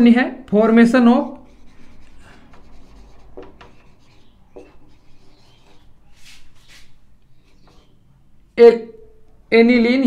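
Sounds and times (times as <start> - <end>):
marker writing on whiteboard: 0.6 - 8.1.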